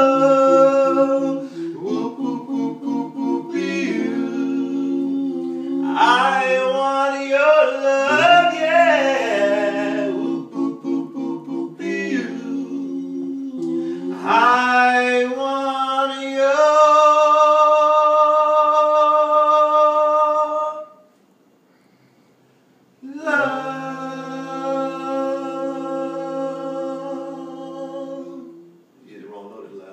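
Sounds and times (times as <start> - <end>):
men singing a cappella: 0.0 - 21.0, 23.0 - 28.8.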